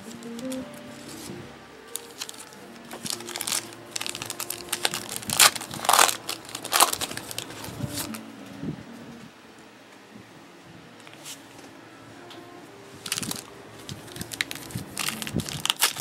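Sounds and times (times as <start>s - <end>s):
foil wrapper crinkling and tearing: 1.9s - 8.2s, 13.0s - 16.0s.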